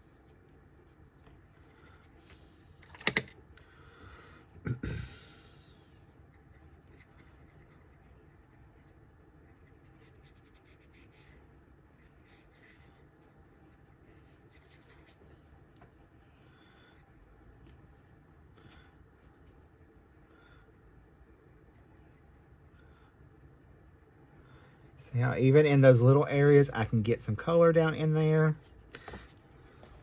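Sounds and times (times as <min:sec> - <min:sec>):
brush scratching on paper: 0:05.6 - 0:16.1.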